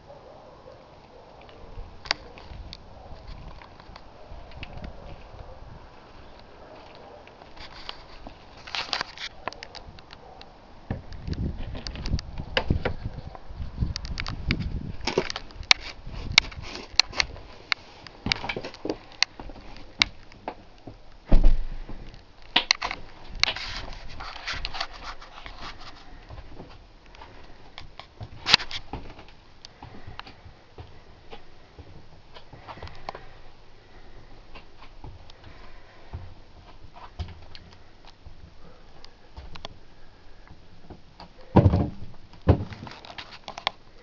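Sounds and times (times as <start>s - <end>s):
handheld camera clicks and rustling: 1.3s - 5.6s, 6.2s - 10.5s, 11.1s - 21.2s, 22.0s - 30.4s, 42.4s - 44.0s
heavy thump: 21.3s - 22.0s, 41.6s - 42.8s.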